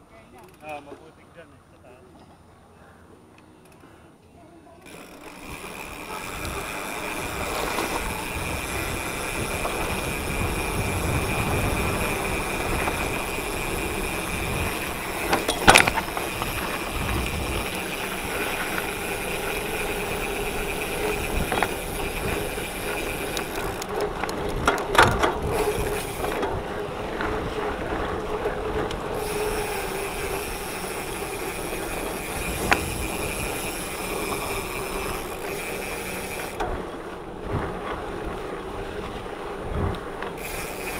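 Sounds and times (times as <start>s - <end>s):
bike tyres rattling over dirt: 4.8s - 40.9s
bike knocking over bumps: 4.9s - 26.6s
wind on microphone: 5.5s - 35.6s, 36.5s - 40.8s.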